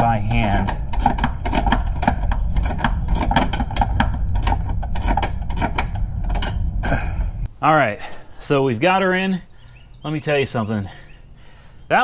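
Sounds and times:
ratcheting wrench clicking: 0.2 - 6.7
low rumble: 0.7 - 7.5.

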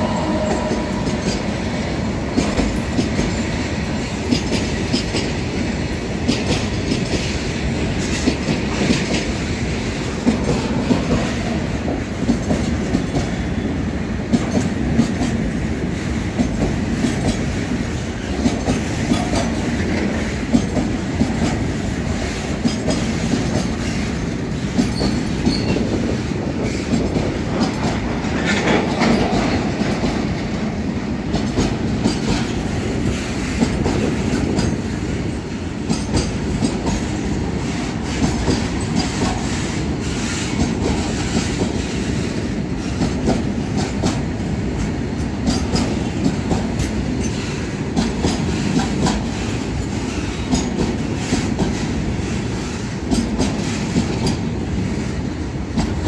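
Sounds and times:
freight train rumbling past: 0.0 - 56.0
wheels clacking over rail joints: 16.3 - 54.9.

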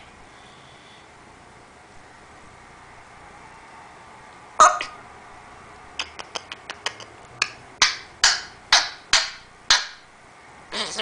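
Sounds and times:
parrot clicking and popping: 6.0 - 10.0.

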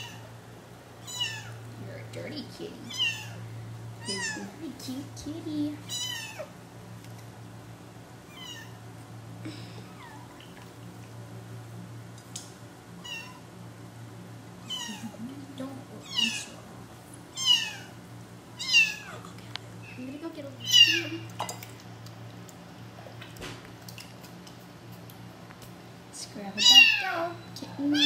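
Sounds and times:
kitten mewing: 1.0 - 1.6, 2.9 - 3.4, 5.9 - 6.5, 8.3 - 8.8, 13.0 - 13.4, 14.6 - 15.2, 17.4 - 18.0, 18.6 - 19.4.

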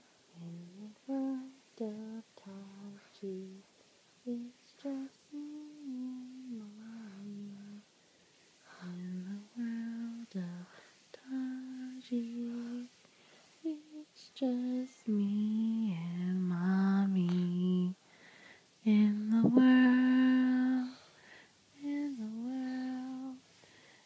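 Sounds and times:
woman humming a lullaby: 0.3 - 3.6, 4.3 - 7.9.

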